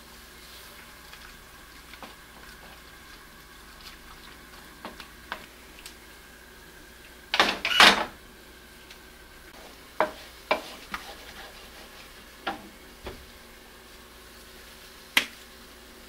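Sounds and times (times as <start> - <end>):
spatula stirring sauce in a pan: 0.4 - 5.5, 9.5 - 12.7
spatula knocking against a pan: 10.0 - 11.0.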